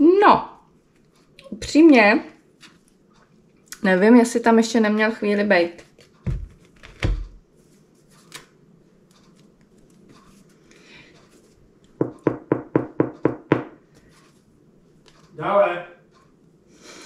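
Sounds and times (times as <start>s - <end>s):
fingers knocking on bread crust: 11.9s - 13.8s.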